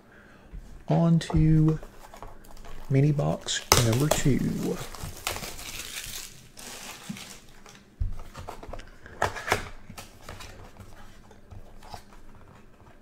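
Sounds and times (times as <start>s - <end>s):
plastic wrapper crinkling: 1.6s - 8.9s.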